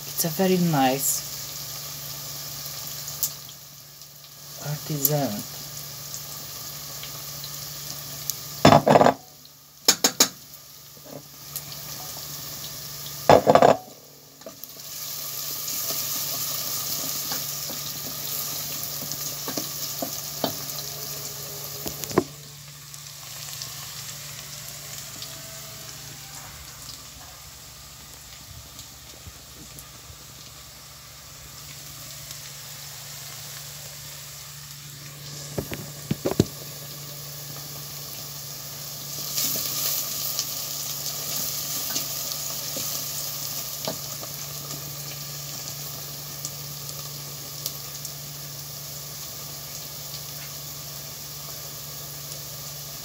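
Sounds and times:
food sizzling: 0.0 - 53.0
sharp knocks and clatters: 8.7 - 9.3, 13.3 - 13.9.

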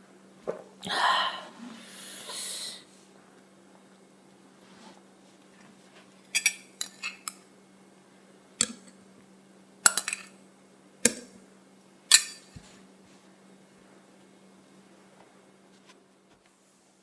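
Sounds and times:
glass bowl clinking on glass: 9.9 - 10.3.

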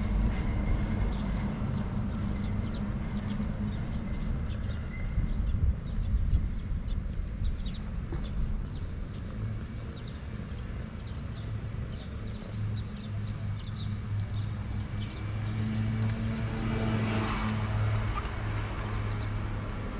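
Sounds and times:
cat purring: 0.0 - 3.4, 5.0 - 15.1
small birds chirping: 0.2 - 19.9.

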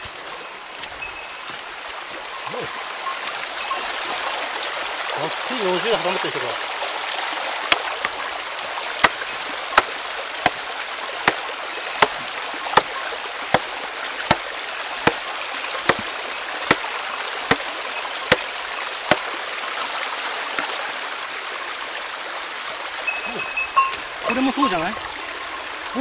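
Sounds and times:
running water: 0.0 - 26.0
hammer striking rock: 7.7 - 7.9, 9.0 - 19.3.

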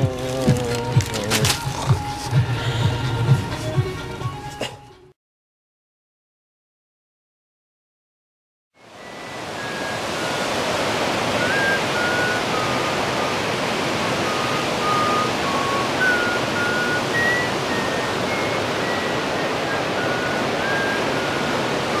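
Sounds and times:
waterfall rushing: 8.8 - 22.0
thin whistled notes: 8.9 - 10.4, 11.4 - 13.1, 14.2 - 22.0.

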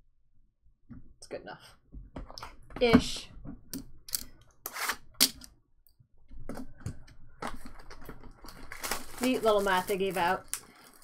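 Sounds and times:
cellophane wrap crinkling: 7.4 - 11.0.

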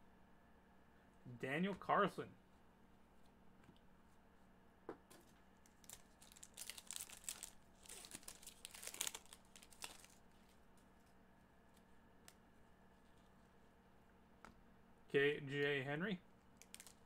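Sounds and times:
wrapper being torn and crinkled: 5.6 - 10.6, 16.6 - 17.0.

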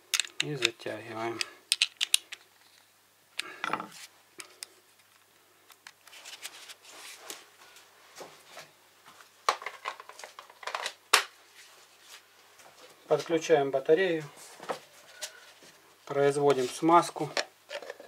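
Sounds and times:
metal and plastic clicks and knocks: 0.1 - 0.8.

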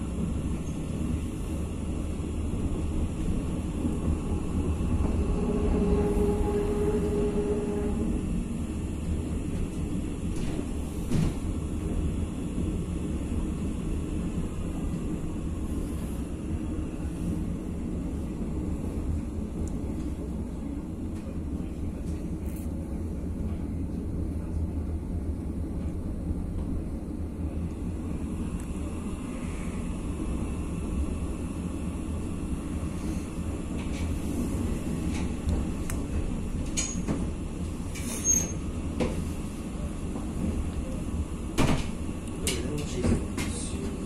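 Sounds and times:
train running rumble: 0.0 - 44.0
brief high squeaks: 38.0 - 38.6.

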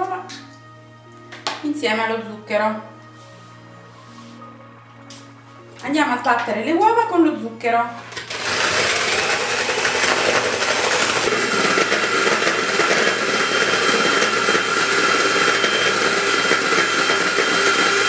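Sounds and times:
electric hand mixer whisking: 8.1 - 18.0.

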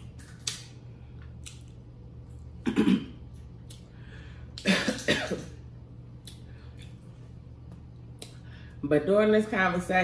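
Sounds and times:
woman coughing: 2.6 - 3.2, 4.6 - 5.6.

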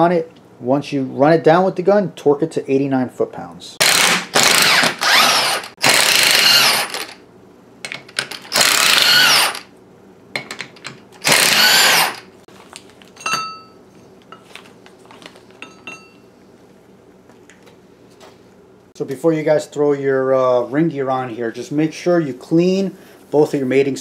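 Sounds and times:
impact wrench hammering bolts: 10.4 - 12.3
short metallic clink: 13.2 - 13.8, 15.6 - 16.2.

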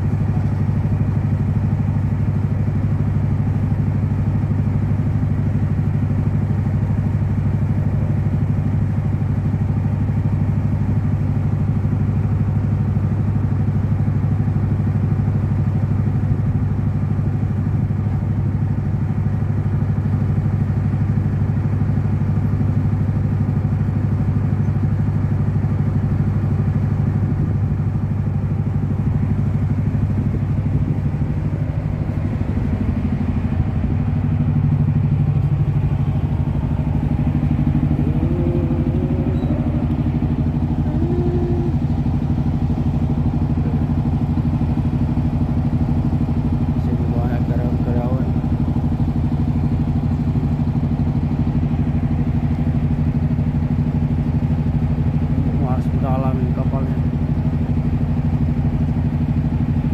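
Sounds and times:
boat engine droning: 0.0 - 59.9.

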